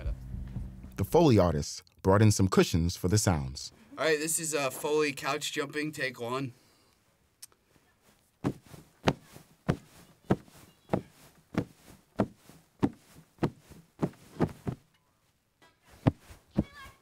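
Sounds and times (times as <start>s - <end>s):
soft thumps on cushions: 8.4s - 14.8s, 16.0s - 17.0s.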